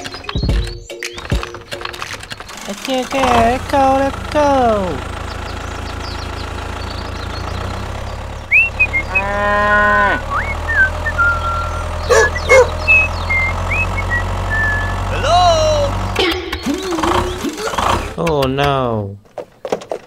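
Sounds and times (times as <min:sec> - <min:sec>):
low engine hum: 0:01.6 - 0:18.2
short high chirps: 0:08.5 - 0:09.1, 0:10.3 - 0:15.0
cow mooing: 0:08.9 - 0:10.5.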